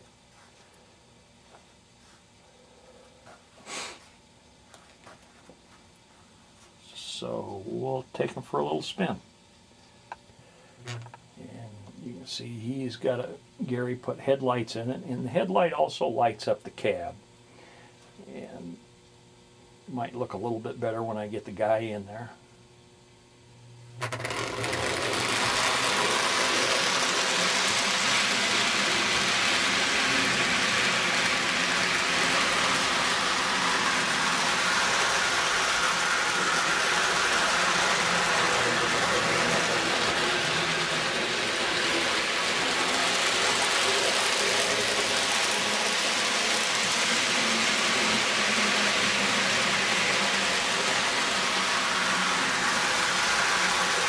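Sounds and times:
toy train motor whirring: 0:24.0 - 0:54.0
wheels rolling on track: 0:24.0 - 0:54.0.

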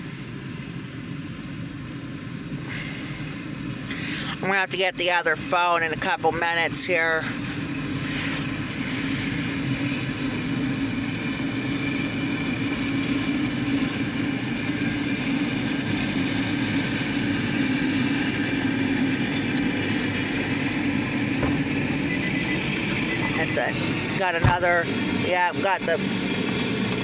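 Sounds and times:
car engine hum: 0:00.0 - 0:27.0.

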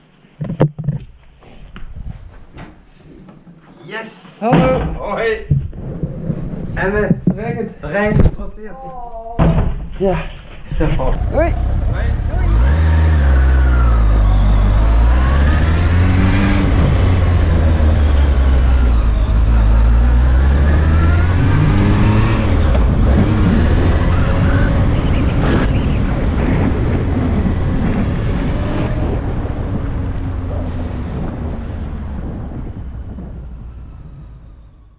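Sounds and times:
wind and road noise: 0:00.0 - 0:02.9, 0:04.6 - 0:08.8, 0:09.4 - 0:34.9
motorcycle engine accelerating: 0:11.0 - 0:34.9.

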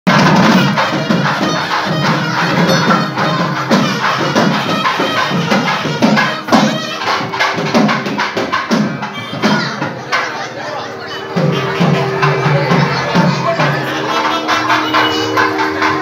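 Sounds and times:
drums and percussion beating: 0:00.1 - 0:16.0
melody line: 0:09.3 - 0:16.0.

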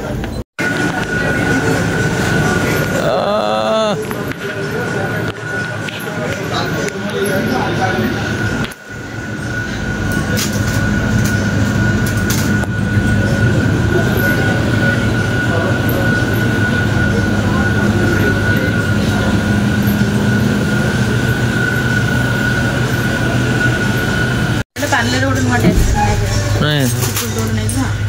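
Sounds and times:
store hum: 0:00.0 - 0:04.4
high-pitched whine: 0:00.6 - 0:24.6.

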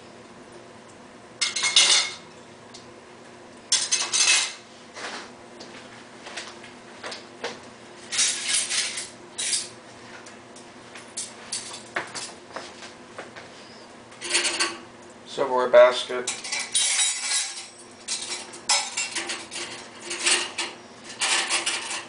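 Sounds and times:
dishes clinking in dishwasher rack: 0:01.4 - 0:02.2, 0:03.7 - 0:04.6, 0:14.2 - 0:14.8, 0:16.2 - 0:22.0.

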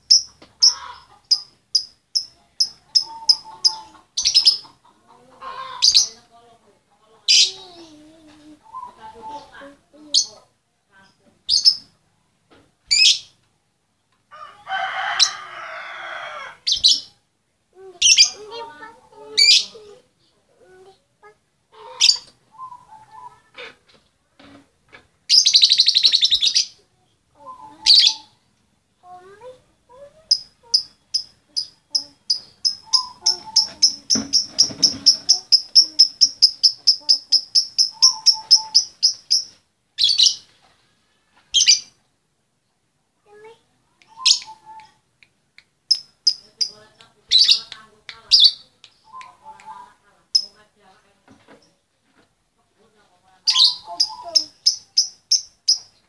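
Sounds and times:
rooster crowing: 0:14.3 - 0:16.7
lovebird shrill chirps: 0:30.3 - 0:40.5, 0:41.5 - 0:41.9, 0:44.1 - 0:45.0, 0:45.9 - 0:50.6, 0:53.5 - 0:55.9
harsh bird squawks: 0:32.0 - 0:40.4, 0:53.5 - 0:55.1.

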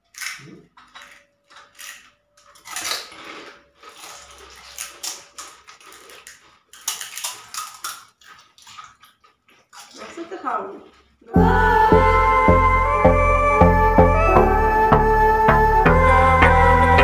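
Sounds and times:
crisp shells cracking and crunching: 0:00.0 - 0:11.0.

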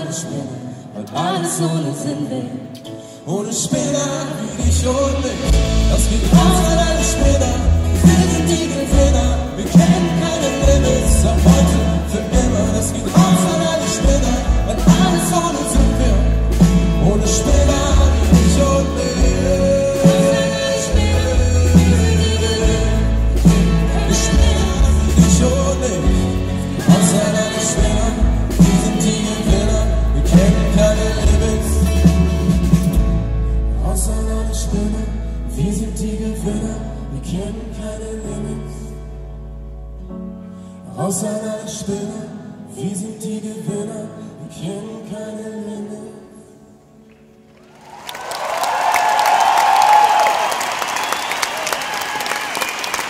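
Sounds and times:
live acoustic band music: 0:00.0 - 0:53.0
piano: 0:00.0 - 0:53.0
drum kit with cymbals: 0:04.5 - 0:33.8
upright double bass: 0:04.5 - 0:39.4
voices singing: 0:05.4 - 0:32.2.

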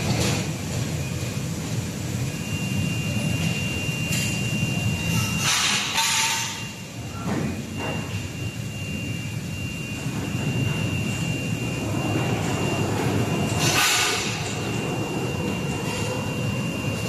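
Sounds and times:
thin steady whine: 0:00.0 - 0:17.0
machinery low rumble: 0:06.8 - 0:17.0.

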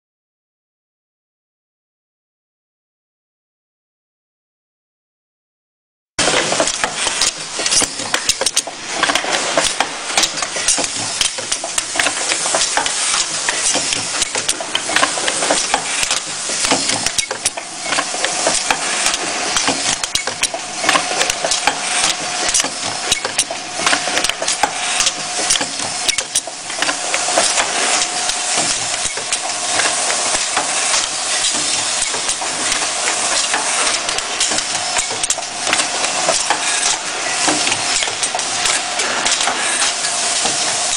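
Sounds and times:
machine clattering clicks and knocks: 0:06.2 - 0:40.9
steady pneumatic hiss: 0:06.6 - 0:40.9.

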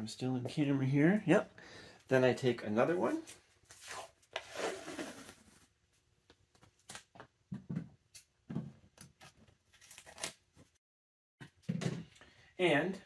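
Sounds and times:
tape ripping off roll: 0:03.8 - 0:05.6.

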